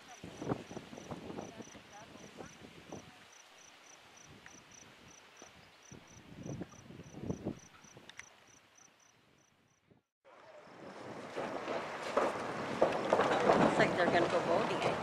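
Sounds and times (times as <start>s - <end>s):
insect chirping: 0.1s - 10.0s.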